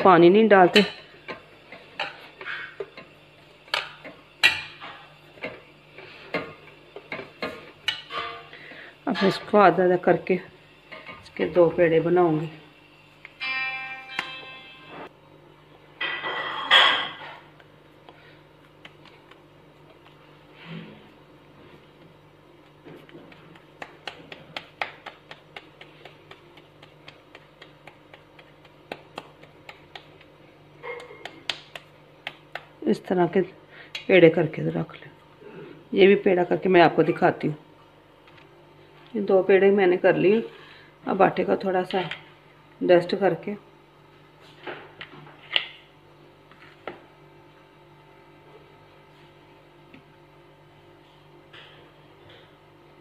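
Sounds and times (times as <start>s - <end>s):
low steady hum: 0.0s - 53.0s
dough kneaded against metal plate: 21.5s - 32.8s.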